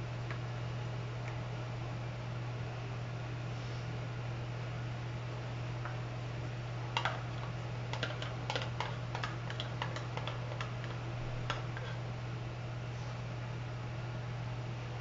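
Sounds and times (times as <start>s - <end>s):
steady low hum: 0.0s - 15.0s
spoon scraping plastic cup: 8.0s - 12.0s.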